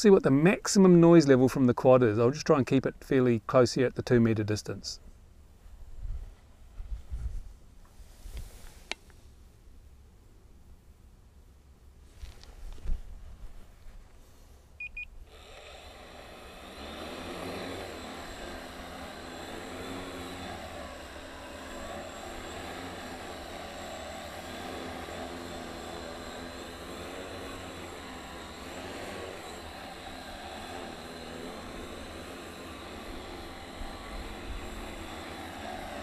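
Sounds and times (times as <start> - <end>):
short beeps: 14.8 - 15.1
quadcopter motors whirring: 14.9 - 36.0.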